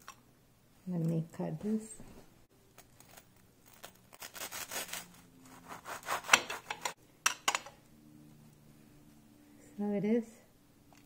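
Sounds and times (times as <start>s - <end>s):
knife sawing through toast: 4.2s - 6.7s.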